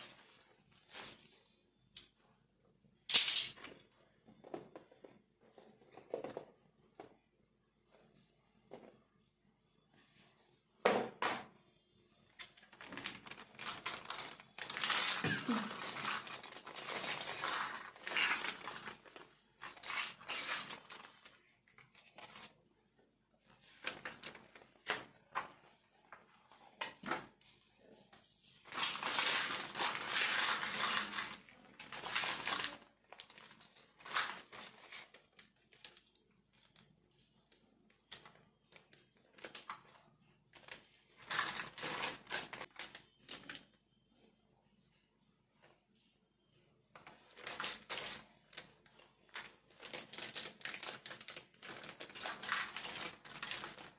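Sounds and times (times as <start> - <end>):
plastic bags crinkling: 0.0 - 1.4, 12.6 - 21.5, 28.7 - 36.7, 47.2 - 53.9.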